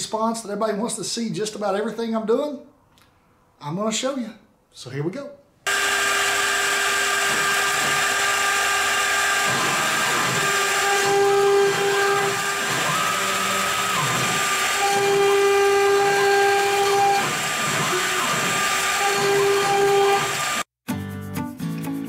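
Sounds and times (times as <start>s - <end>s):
router spindle whining: 5.7s - 20.7s
stepper motor tones: 5.7s - 20.7s.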